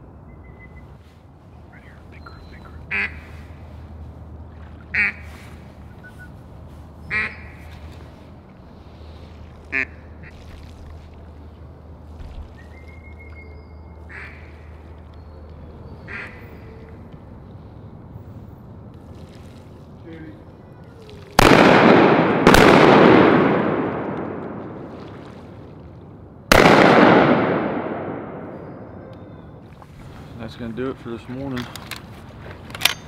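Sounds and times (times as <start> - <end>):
duck quacking: 2.6 - 3.4, 4.9 - 5.3, 7.1 - 7.6, 9.7 - 10.3, 14.1 - 14.5, 16.1 - 16.4.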